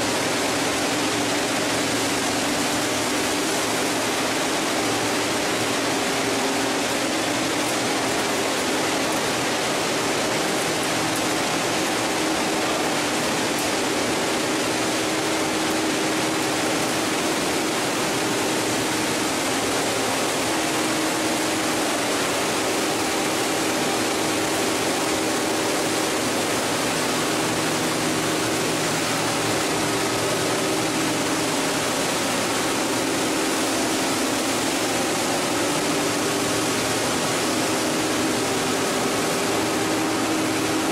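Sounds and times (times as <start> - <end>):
machinery and churning water: 0.0 - 40.9.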